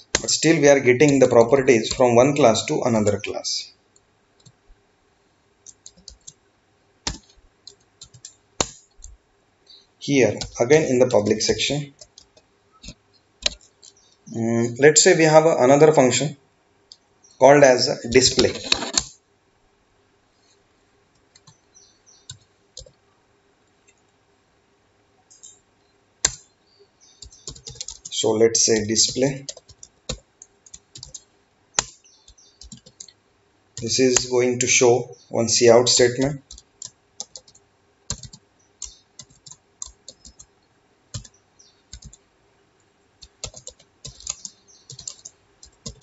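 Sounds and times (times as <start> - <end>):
computer keyboard keys clicking: 5.6 - 6.4, 7.1 - 9.2, 10.4 - 11.4, 12.0 - 14.0, 26.2 - 26.4, 27.2 - 33.2, 36.1 - 40.5, 41.1 - 42.2, 43.2 - 46.0.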